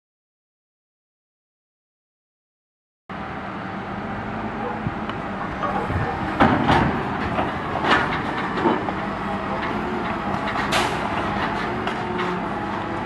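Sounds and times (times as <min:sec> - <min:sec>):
truck engine running: 0:03.1 - 0:13.0.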